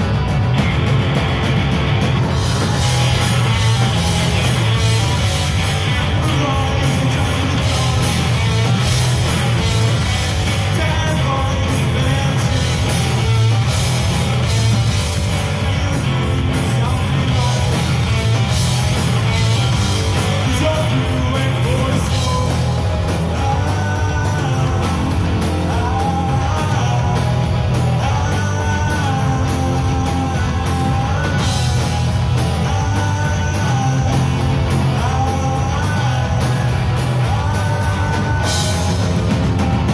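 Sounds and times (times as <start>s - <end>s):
bass guitar: 0.0s - 39.9s
distorted electric guitar: 0.0s - 39.9s
drum kit: 0.0s - 39.9s
person singing: 20.2s - 39.4s.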